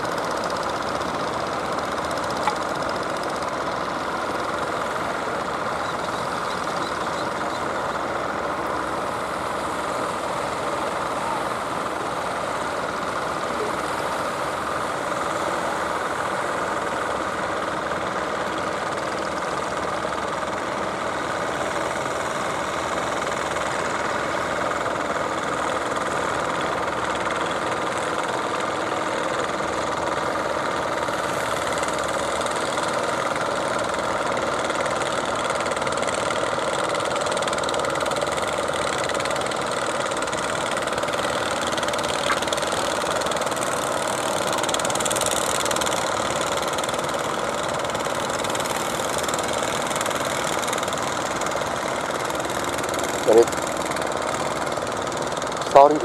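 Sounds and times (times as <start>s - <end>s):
boat engine running: 0.0s - 56.0s.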